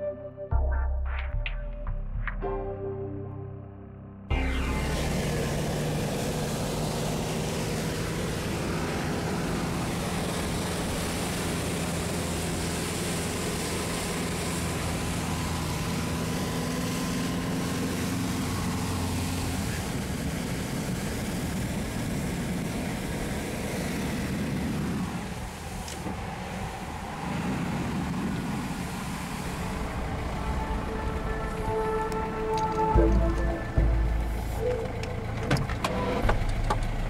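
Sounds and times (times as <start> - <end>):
off-road vehicle engine: 4.3 - 37.0
water rushing and spraying: 4.6 - 34.8.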